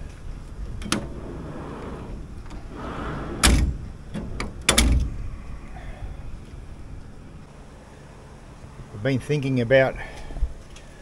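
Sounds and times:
drawer sliding: 0.8 - 4.6.

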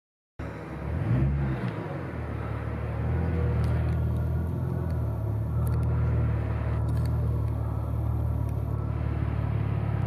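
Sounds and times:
car engine rumbling: 0.4 - 10.0.

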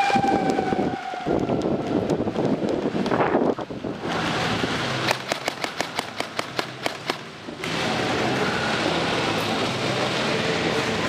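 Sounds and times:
airsoft gun rapid firing: 5.0 - 7.3.

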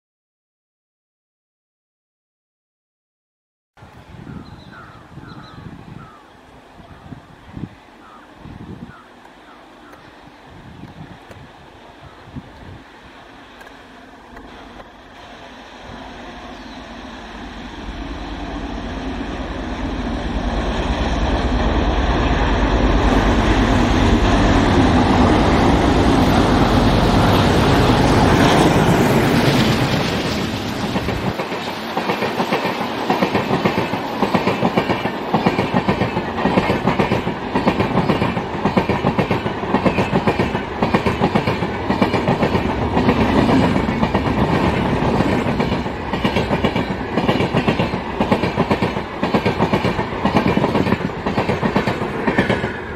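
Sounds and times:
diesel locomotive engines passing: 3.8 - 52.9
train wheels clickety-clack: 26.4 - 52.9.

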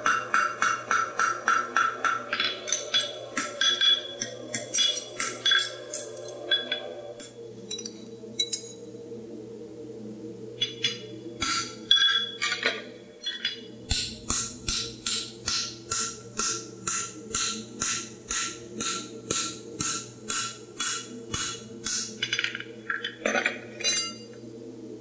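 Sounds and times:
hammer striking tool on anvil: 0.0 - 5.7, 13.3 - 22.1
ringing hammer blows: 0.0 - 6.8, 13.2 - 22.2, 23.8 - 24.3.

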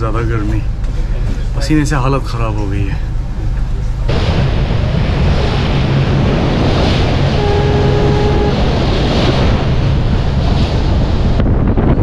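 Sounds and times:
low rumble: 0.0 - 12.0
water rushing along boat hull: 0.0 - 12.0
wind buffeting microphone: 3.8 - 12.0.

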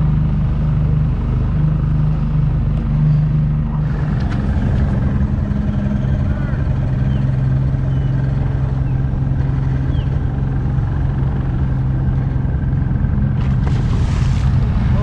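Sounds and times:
engine humming steadily: 0.0 - 15.0.

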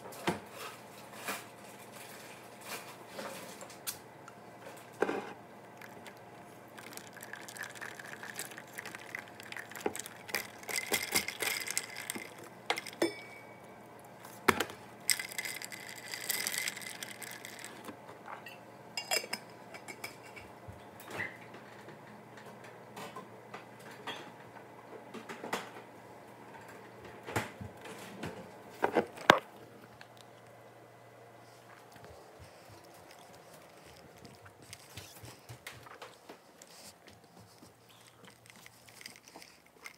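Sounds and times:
household objects clinking and knocking: 9.5 - 13.5.

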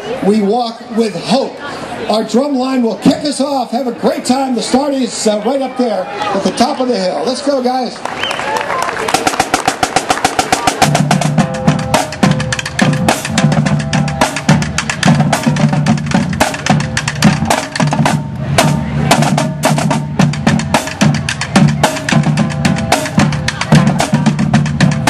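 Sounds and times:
marching snare and tenor drums: 9.1 - 25.0.

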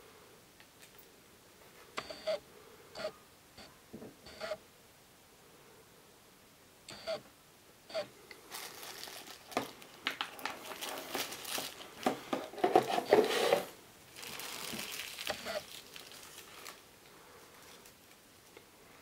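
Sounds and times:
paper and plastic crinkling: 8.4 - 18.6.

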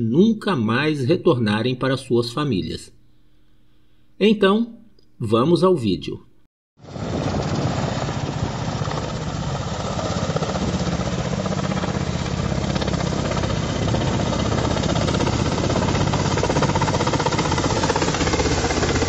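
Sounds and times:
helicopter rotors chopping: 6.8 - 19.0.

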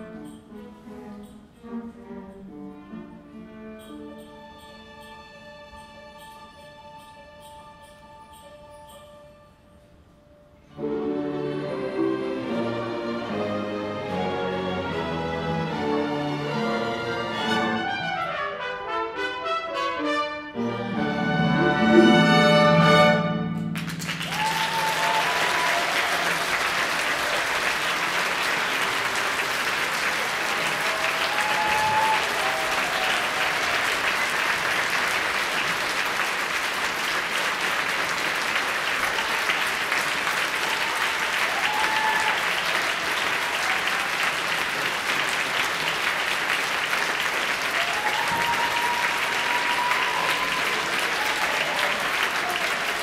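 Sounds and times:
audience applauding: 23.5 - 53.0.

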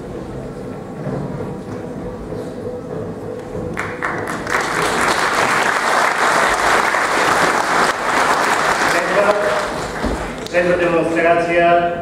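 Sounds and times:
audience applauding: 3.7 - 10.8.

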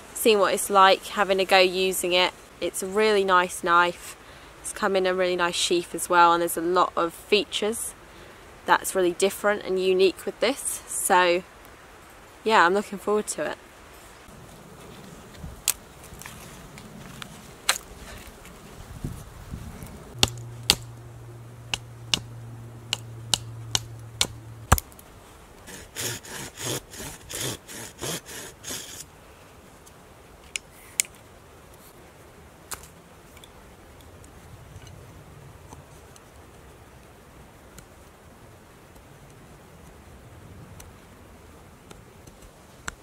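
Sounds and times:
knife shaving a wooden stick: 25.7 - 29.0.

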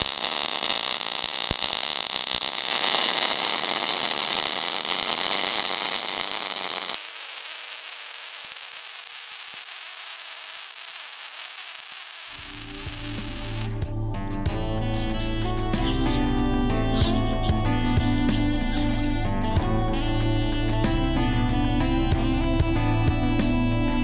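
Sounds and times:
welding arc crackling hiss: 0.0 - 13.8.

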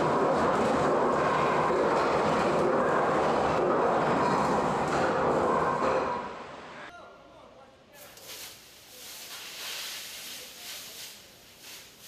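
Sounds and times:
loud machinery hum: 0.0 - 6.9.

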